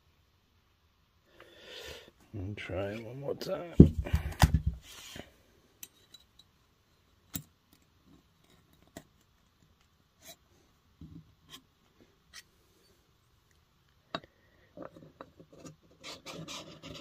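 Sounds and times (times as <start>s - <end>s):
dull thumps on workbench: 3.8s - 4.8s.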